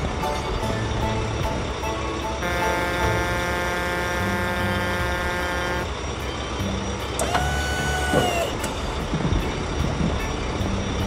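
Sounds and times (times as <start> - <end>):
cartoon engine rumble: 2.4 - 5.9
long held tone: 2.4 - 6.0.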